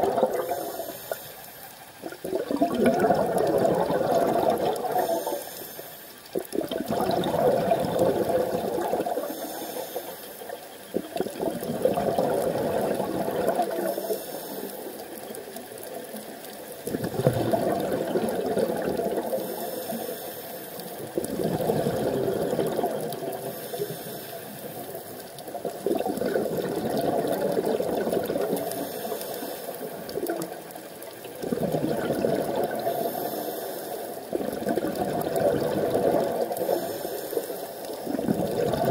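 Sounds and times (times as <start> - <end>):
exhaust bubbling underwater: 0.0 - 1.2, 1.9 - 5.4, 6.2 - 20.1, 20.7 - 33.4, 34.0 - 38.9
regulator inhale hiss: 0.3 - 1.8, 4.7 - 6.4, 8.6 - 10.9, 13.7 - 16.6, 19.2 - 21.0, 23.3 - 25.4, 28.6 - 30.1, 32.8 - 34.4, 36.4 - 38.1.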